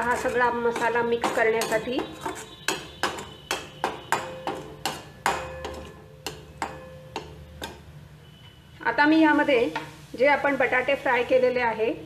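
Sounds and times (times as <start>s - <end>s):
metal spatula scraping a metal pan: 0.0s - 8.4s.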